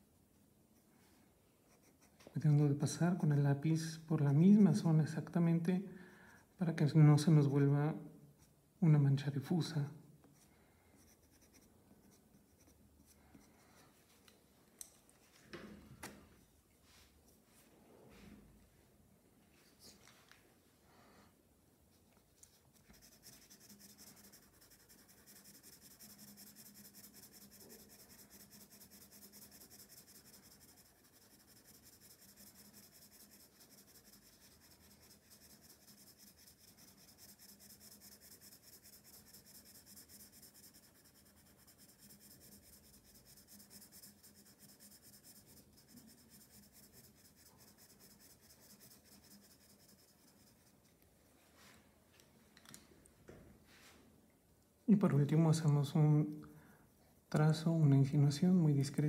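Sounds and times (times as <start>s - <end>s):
pencil scratching on paper: 1.7s - 2.3s, 10.4s - 13.8s, 22.3s - 51.0s.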